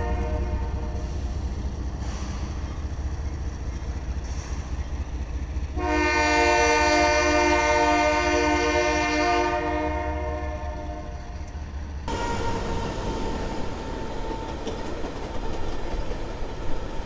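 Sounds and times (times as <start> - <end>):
locomotive air horn chord: 0.0 - 1.0, 5.8 - 11.3
diesel locomotives rumbling past: 0.0 - 17.0.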